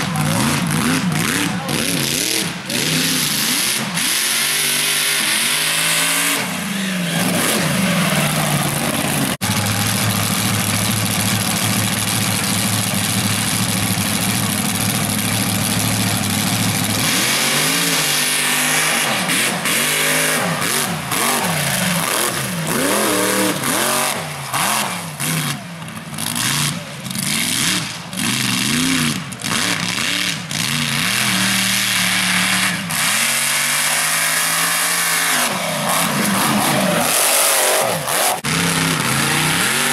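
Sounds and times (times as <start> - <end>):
buggy engine revving: 0.0 - 39.9.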